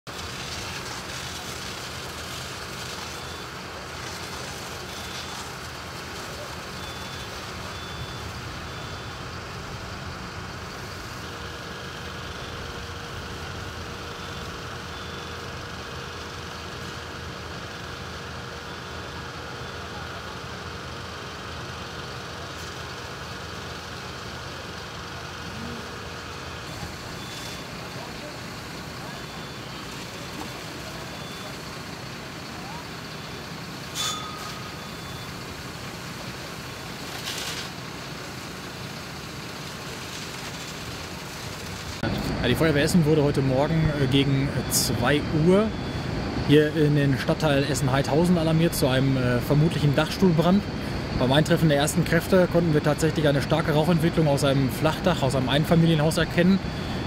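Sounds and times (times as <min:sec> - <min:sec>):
fire engines running: 0:00.0 - 0:57.0
constant hiss: 0:00.1 - 0:57.0
faint constant whine: 0:00.1 - 0:57.0.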